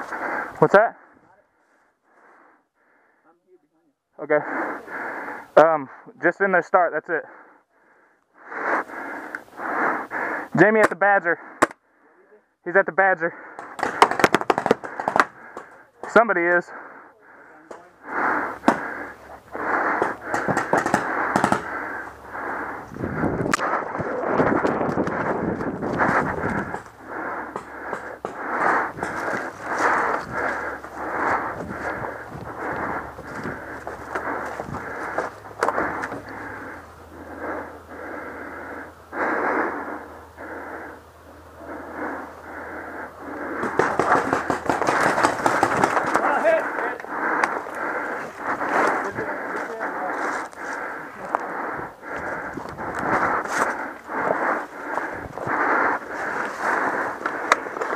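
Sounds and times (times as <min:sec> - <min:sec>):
heavy muffled breathing: 0:00.0 - 0:12.5, 0:13.2 - 0:57.9
rapid clatter of knocks: 0:13.6 - 0:15.7, 0:20.0 - 0:21.7, 0:43.6 - 0:46.2
paintball markers firing: 0:13.6 - 0:16.2, 0:19.9 - 0:21.9, 0:43.6 - 0:46.2.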